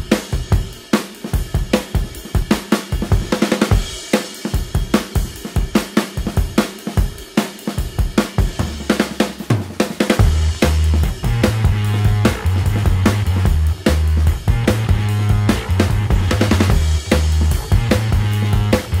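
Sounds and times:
fast drum beat: 0.0 - 19.0
bass line: 10.2 - 19.0.

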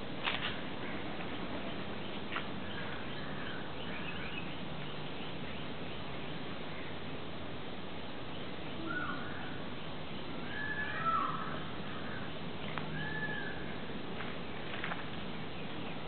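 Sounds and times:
steady background hiss: 0.0 - 16.0
faint bird chirps: 8.3 - 13.9.

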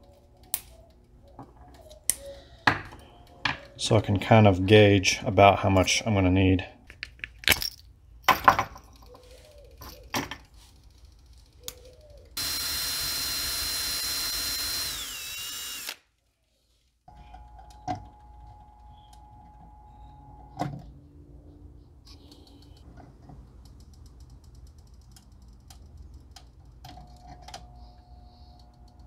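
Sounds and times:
power drill boring into wood: 12.4 - 16.0.

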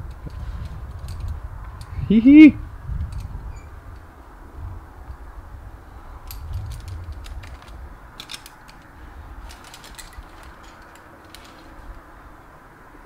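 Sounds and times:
climbing gear clinking: 0.0 - 4.1, 6.1 - 12.5
low wind rumble: 0.0 - 13.0.

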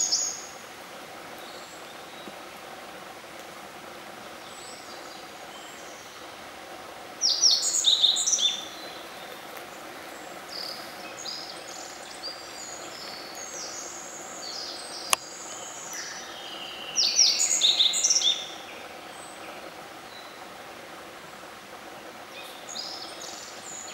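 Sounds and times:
bird chirping song: 0.0 - 0.6, 4.4 - 6.5, 7.2 - 20.5, 22.3 - 23.9
soft bird song notes: 0.0 - 0.6, 4.3 - 20.6, 21.9 - 23.9.

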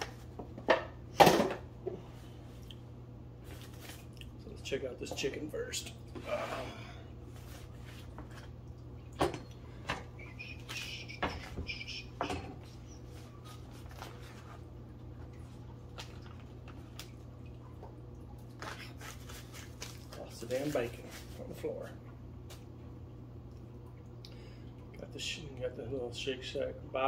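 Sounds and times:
paper wrapper rustling: 13.2 - 14.7, 18.6 - 21.4.

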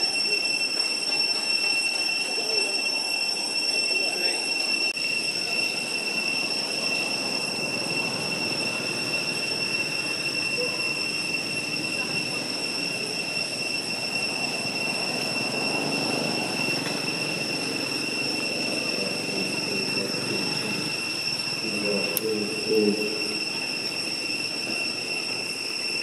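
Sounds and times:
cicadas droning: 0.0 - 26.0
low background murmur: 0.0 - 26.0.

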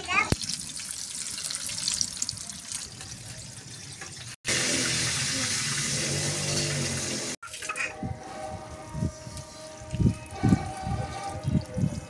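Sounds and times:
hot oil sizzling and crackling: 0.0 - 7.9.

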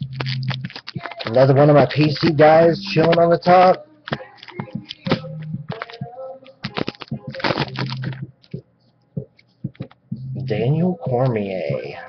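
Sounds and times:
trading cards clicking and tapping: 0.0 - 2.4, 3.0 - 8.6, 9.2 - 10.0.

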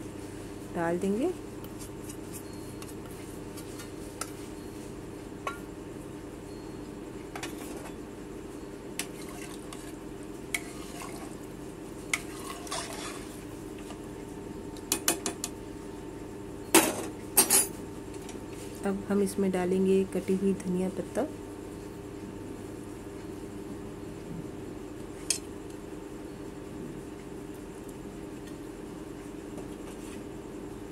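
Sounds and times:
ladle stirring rice in pot: 9.0 - 11.4, 12.2 - 13.4.

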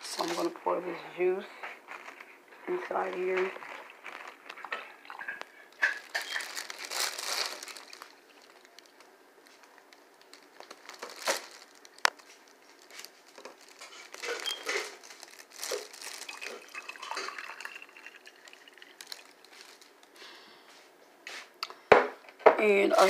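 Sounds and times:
juice pouring and splashing: 1.9 - 9.0, 13.3 - 20.0
ice clinking in a glass: 5.1 - 6.6, 16.2 - 19.2.

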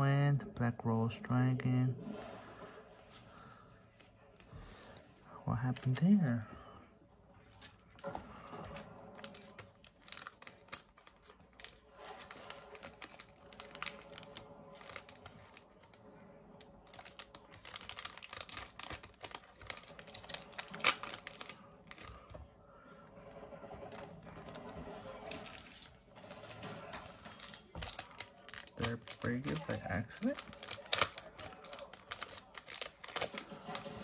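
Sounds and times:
trading cards clicking and rustling: 4.0 - 6.4, 7.4 - 16.0, 16.6 - 22.3, 23.8 - 34.0.

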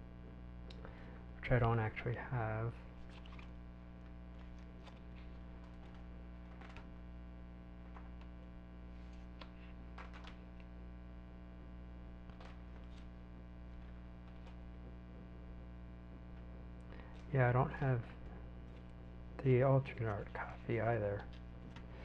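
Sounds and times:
electrical mains hum: 0.0 - 22.0
plastic sleeve pages rustling: 2.9 - 7.1, 7.8 - 10.7, 12.2 - 14.8, 18.1 - 22.0.

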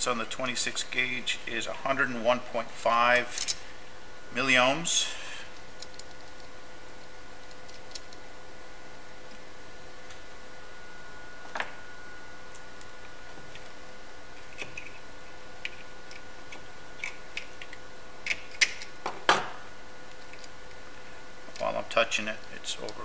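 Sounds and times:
faint high whine: 0.0 - 18.3.

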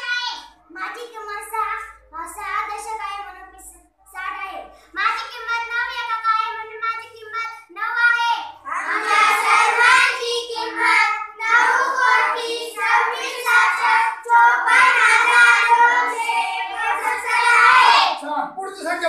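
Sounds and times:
children singing in unison: 8.7 - 18.2.

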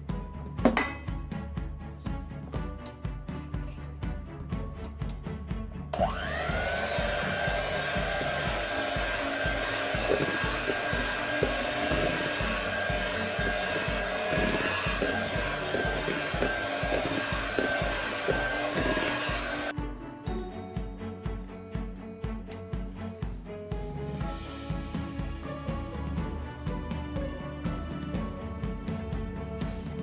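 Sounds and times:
background music: 0.0 - 30.0
electric hand mixer whine: 5.9 - 19.8.

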